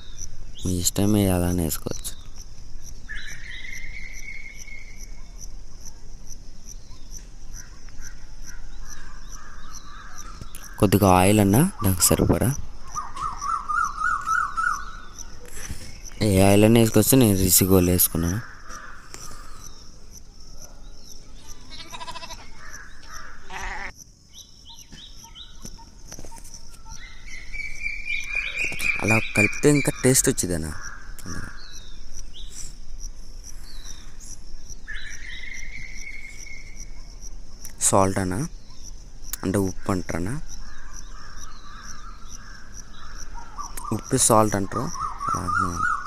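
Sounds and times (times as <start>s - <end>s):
cricket chirping: 0.0s - 46.0s
animal wavering cry: 21.5s - 23.9s.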